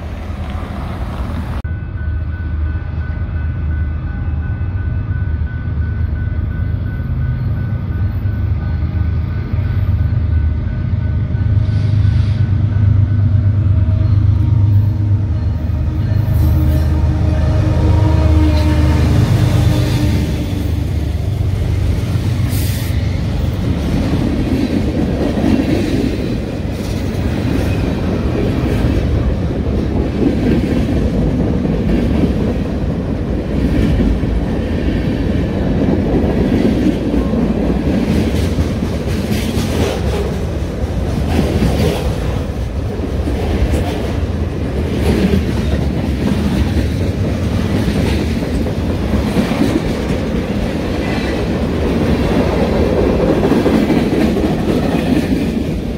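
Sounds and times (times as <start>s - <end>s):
diesel locomotives passing: 0.0s - 55.9s
freight train rumble: 0.0s - 55.9s
train wheels clacking: 35.7s - 55.9s.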